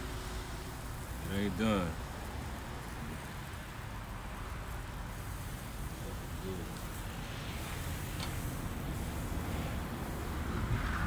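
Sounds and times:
steady hiss: 0.0 - 11.0
wind rumble on microphone: 8.7 - 11.0.

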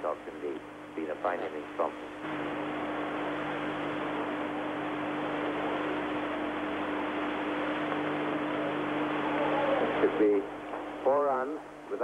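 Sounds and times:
recording hiss: 0.0 - 12.0
low hum: 0.8 - 11.9.

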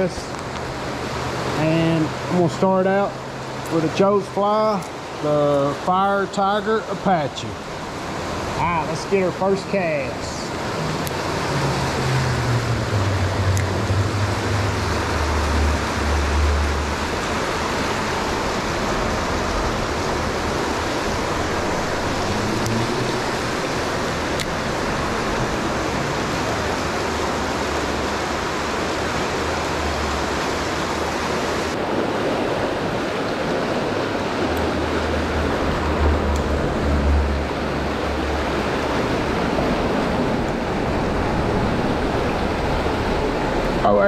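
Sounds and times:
river water rushing: 0.0 - 44.0.

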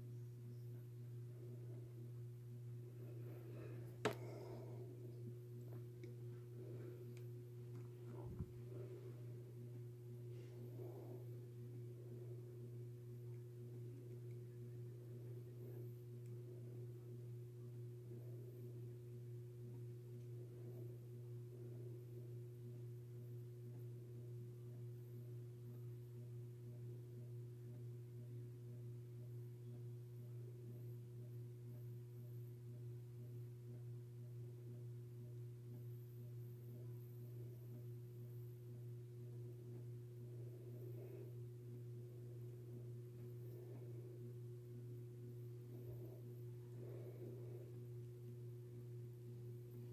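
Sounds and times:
faint low hum: 0.0 - 49.9.

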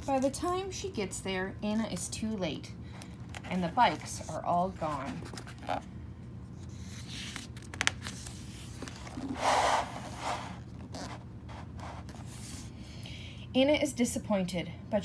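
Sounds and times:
book pages turning: 3.0 - 5.9, 6.5 - 12.7
paper rustling and sliding: 6.6 - 12.7.

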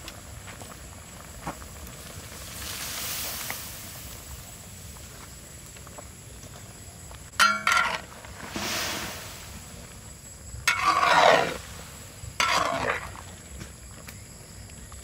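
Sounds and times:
metal spatula scraping a wok: 7.4 - 9.1, 10.7 - 11.7, 12.4 - 13.1.

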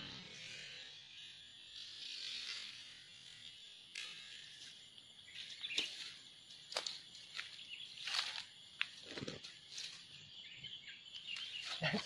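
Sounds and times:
dry grass rustling and crackling: 3.9 - 10.1.

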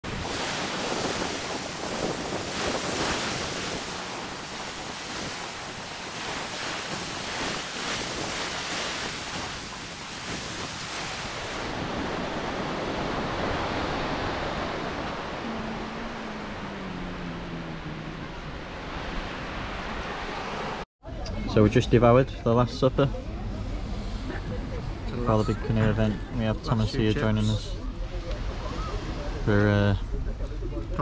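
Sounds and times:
waves washing up a beach: 0.0 - 20.8
wind on microphone: 0.0 - 20.8.

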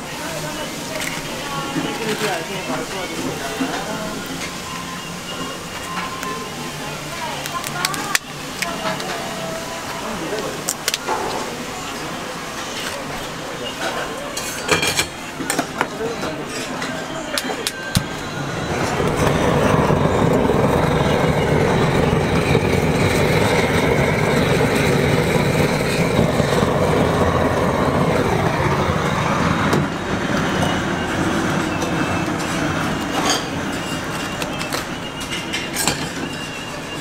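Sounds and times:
kitchen torch flame hissing: 17.4 - 35.0.

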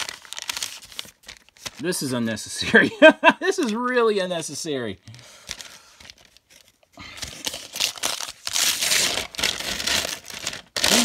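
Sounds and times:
paper crinkling and rustling: 0.0 - 2.4, 5.4 - 11.0.

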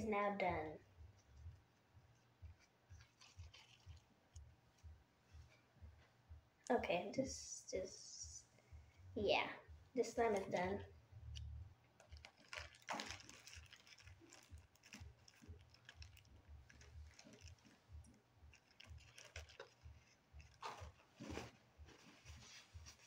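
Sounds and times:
slime crinkling and clicking: 3.0 - 4.0, 11.3 - 21.5.

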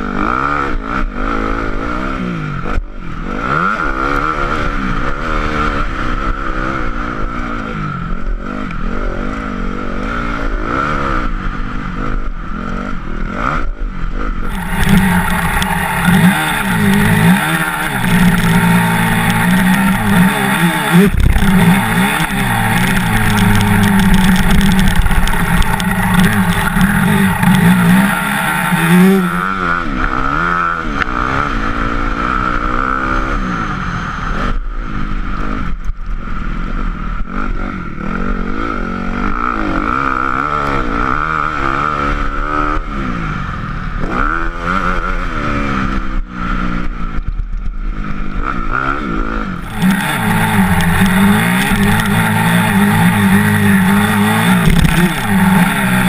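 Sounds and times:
motocross bike engine revving: 0.0 - 7.6, 8.2 - 34.5, 48.1 - 56.0.

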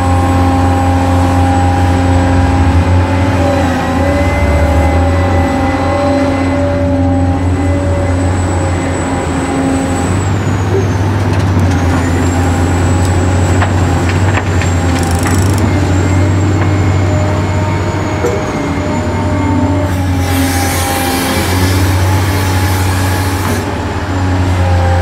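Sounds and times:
electric motor whine and hum: 14.7 - 17.7.

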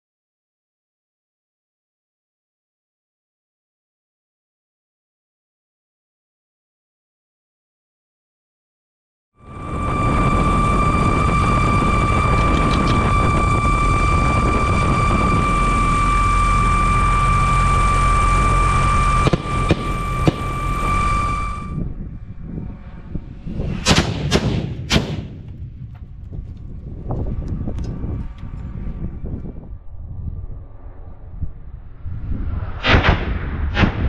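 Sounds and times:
drone rotor whine: 9.4 - 23.9, 25.4 - 34.0
sharp explosion bangs: 19.2 - 25.8, 32.2 - 34.0.

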